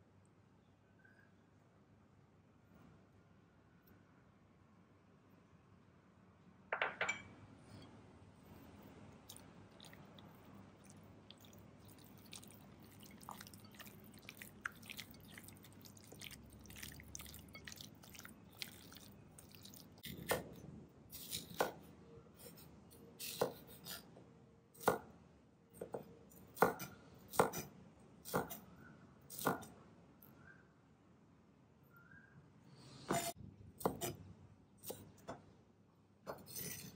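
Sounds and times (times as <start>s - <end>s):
hand squelching meat in marinade: 9.2s - 20.2s
knife chopping on cutting board: 33.1s - 34.2s.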